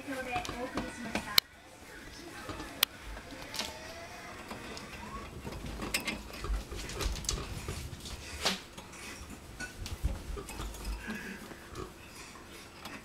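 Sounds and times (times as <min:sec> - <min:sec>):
hamster gnawing on wire bars: 0:04.4 - 0:08.0.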